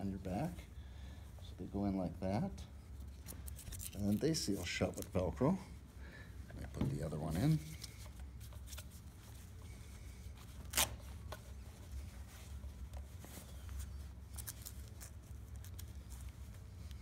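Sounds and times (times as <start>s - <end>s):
fabric rustling: 6.6s - 17.0s.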